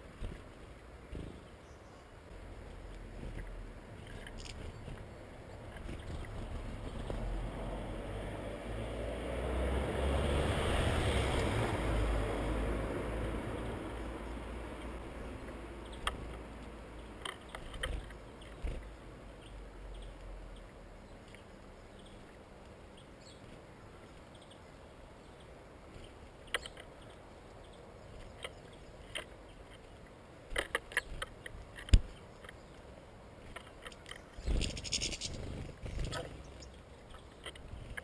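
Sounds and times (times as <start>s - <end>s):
birds tapping at seed feeder: 2.6s - 7.3s, 14.8s - 24.6s, 25.2s - 38.0s.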